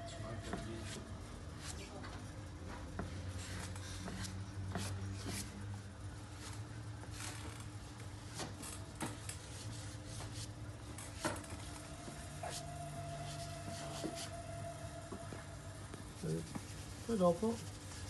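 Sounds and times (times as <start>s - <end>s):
chalk scratching on paper: 3.3s - 5.6s, 12.4s - 14.4s, 16.1s - 18.0s.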